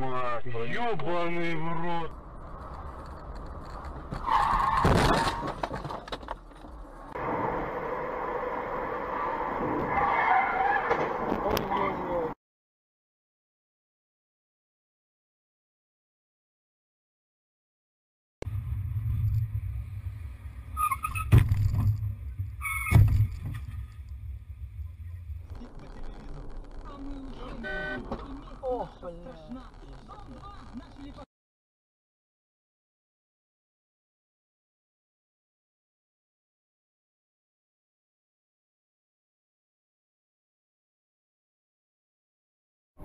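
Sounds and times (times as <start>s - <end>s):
car driving road noise: 0.9s - 12.4s, 18.5s - 31.2s
car crash: 2.1s - 11.6s, 18.5s - 28.5s.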